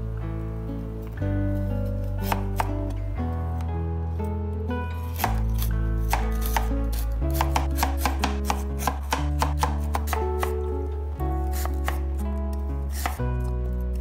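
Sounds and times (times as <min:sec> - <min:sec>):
background music: 0:00.0 - 0:14.0
cleaver slicing on cutting board: 0:05.1 - 0:10.5.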